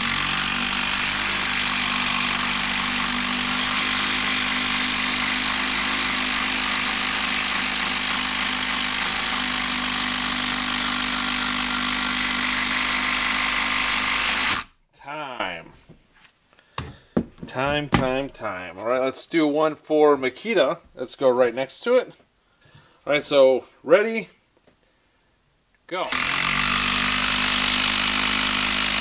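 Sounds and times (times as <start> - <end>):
impact driver hammering: 0.0 - 14.7, 16.8 - 18.3.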